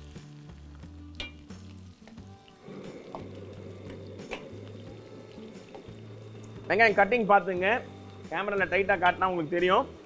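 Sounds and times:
background music: 0:00.0 - 0:10.0
onions sizzling in oil: 0:00.0 - 0:10.0
metal spoon clinking on pan: 0:01.2 - 0:01.5.

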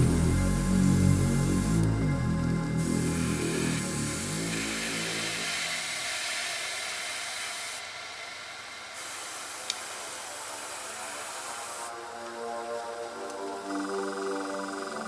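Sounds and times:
airbrush spraying hiss: 0:00.0 - 0:01.9, 0:02.8 - 0:08.2, 0:08.9 - 0:11.9.

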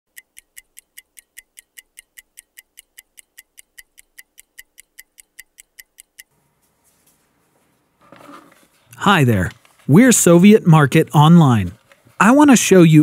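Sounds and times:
mechanical watch ticking: 0:00.1 - 0:06.3.

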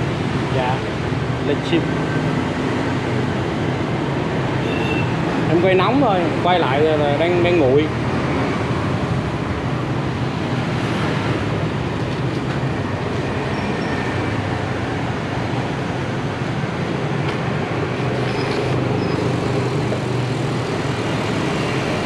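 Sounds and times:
street traffic rumble: 0:00.0 - 0:22.0.

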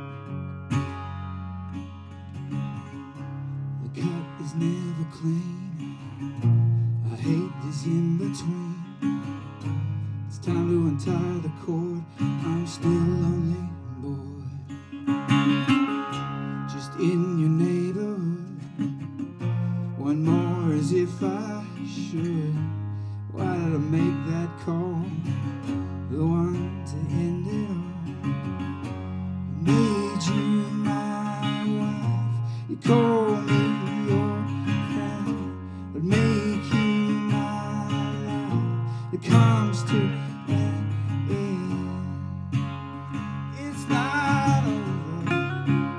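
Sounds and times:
resonator guitar blues picking: 0:00.0 - 0:45.9.

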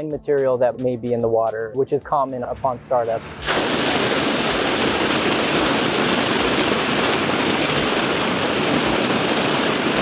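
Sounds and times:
water gushing from a pipe: 0:03.2 - 0:10.0
water splashing into concrete channel: 0:03.4 - 0:10.0.

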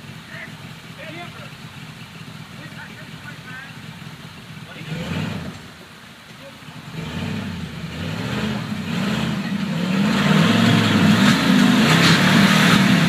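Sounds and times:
engine revving hard: 0:04.6 - 0:05.7, 0:06.7 - 0:13.0.

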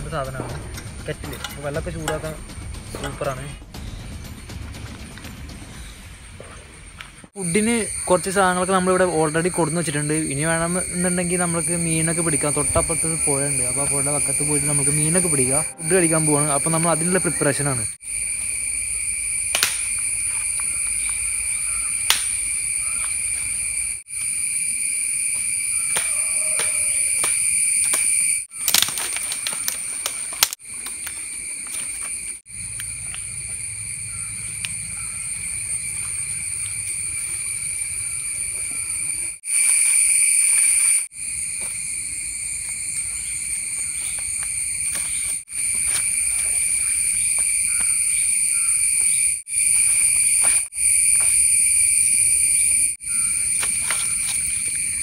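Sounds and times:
shrill insect chorus: 0:05.7 - 0:55.0
dry leaves and twigs crackling: 0:19.5 - 0:24.4, 0:25.4 - 0:55.0
footsteps on leaves: 0:28.5 - 0:38.2, 0:39.5 - 0:52.2, 0:53.1 - 0:55.0.

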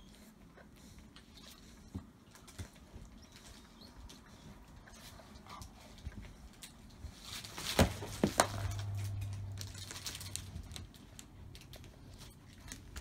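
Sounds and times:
low steady hum: 0:00.0 - 0:13.0
dogs rustling in bedding: 0:04.4 - 0:11.2.

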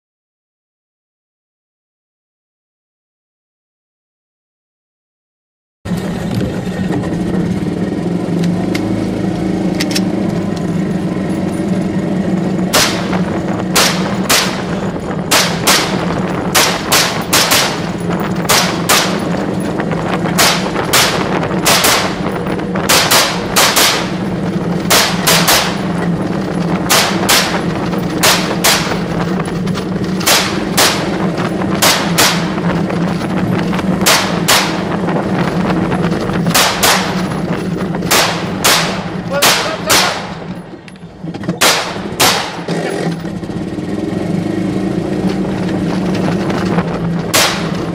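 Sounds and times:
golf cart running: 0:05.9 - 0:47.9
rifle shots: 0:12.7 - 0:29.4, 0:30.1 - 0:35.4, 0:36.4 - 0:40.6, 0:41.6 - 0:43.1, 0:47.3 - 0:47.9.

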